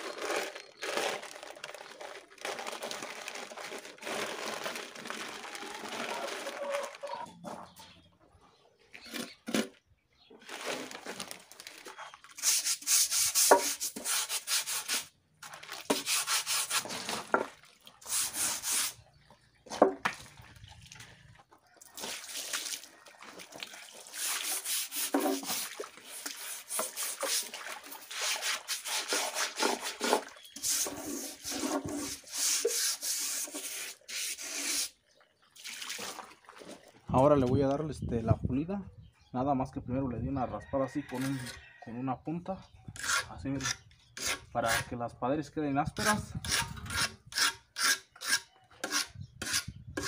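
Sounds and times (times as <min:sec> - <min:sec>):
hand scraping wet cement: 0:00.0 - 0:07.5, 0:08.8 - 0:19.1, 0:21.9 - 0:35.0, 0:43.0 - 0:44.9, 0:46.0 - 0:50.0.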